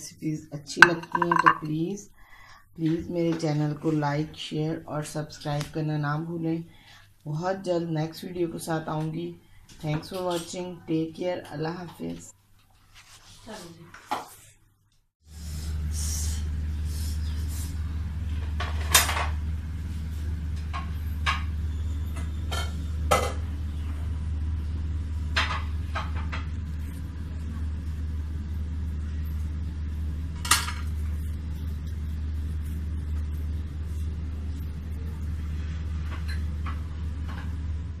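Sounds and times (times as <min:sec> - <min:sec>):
ceramic platter clinking: 0:00.8 - 0:01.7
steady low hum: 0:15.3 - 0:38.0.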